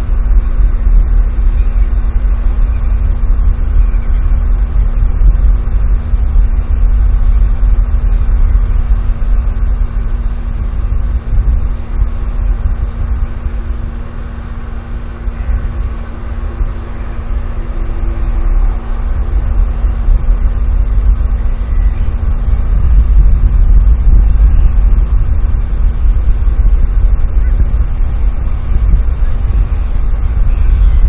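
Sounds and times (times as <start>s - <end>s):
faint electrical hum: 0.0s - 31.0s
wind buffeting microphone: 0.0s - 31.0s.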